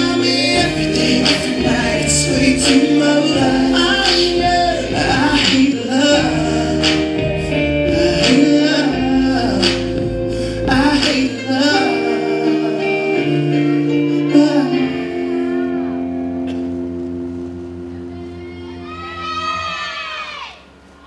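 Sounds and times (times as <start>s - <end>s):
person singing: 0.0s - 16.5s
dance music chords: 0.0s - 21.0s.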